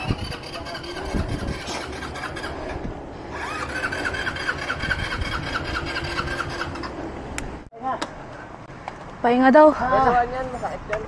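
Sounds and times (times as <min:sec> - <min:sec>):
wind on microphone: 0:00.0 - 0:07.7
tyre and road noise: 0:00.0 - 0:11.0.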